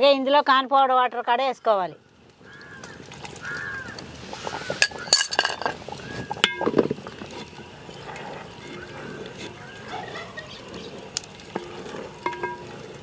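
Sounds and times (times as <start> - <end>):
spoon clinking against metal pot: 4.8 - 5.8, 11.6 - 12.7.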